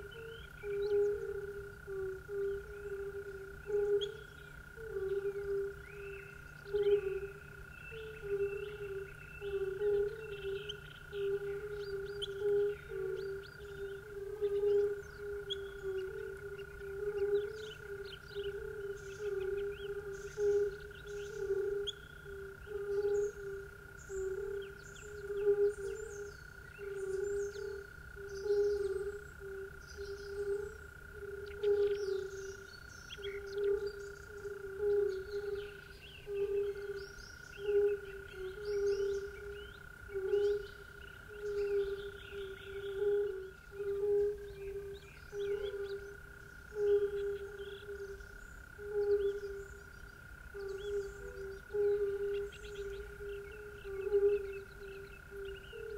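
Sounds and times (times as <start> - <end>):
constant high drone: 0.0 - 55.9
frogs croaking: 0.0 - 55.9
bird chirps: 46.8 - 55.9.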